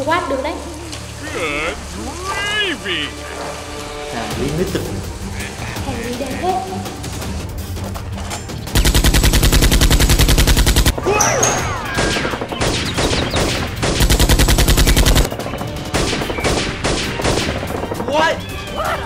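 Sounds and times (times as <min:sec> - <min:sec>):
rapid automatic gunfire: 0:08.7 - 0:11.0, 0:11.9 - 0:18.0.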